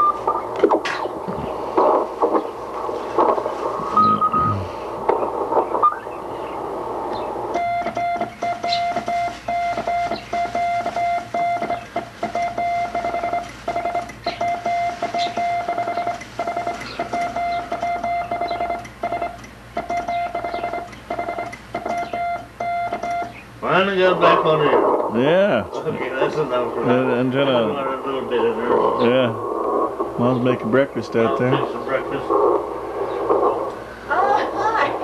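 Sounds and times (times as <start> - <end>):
morse code beeping: 0.0 - 0.2, 3.9 - 4.6, 7.5 - 23.4
radio hiss: 0.0 - 35.0.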